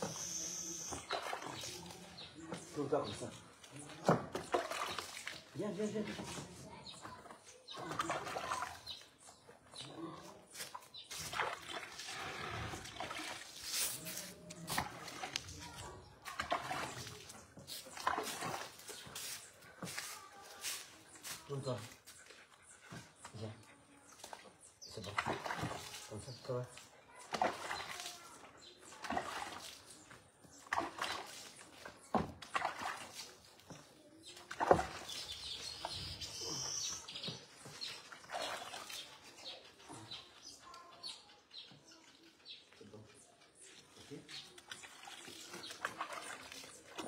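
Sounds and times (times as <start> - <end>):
water splashing in plastic bucket: 0.8 - 9.1, 9.9 - 20.2, 25.0 - 26.2, 27.2 - 36.5, 37.1 - 39.3, 44.6 - 47.0
water rubbed into wet dog coat: 10.1 - 22.6, 43.8 - 47.0.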